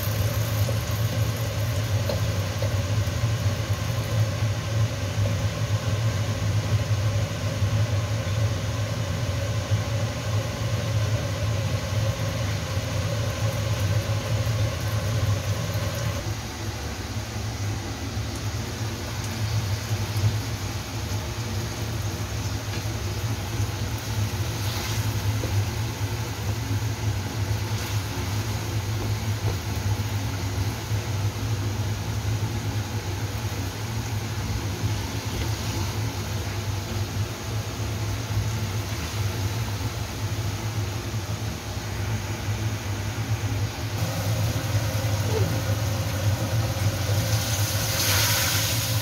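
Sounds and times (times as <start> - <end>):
wings sizzling in sauce: 0.0 - 5.7, 18.4 - 40.4, 44.0 - 49.0
steady low hum: 0.0 - 49.0.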